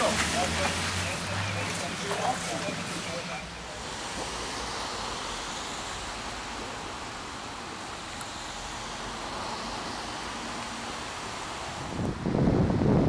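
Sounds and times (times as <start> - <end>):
brook rushing: 0.0 - 5.1.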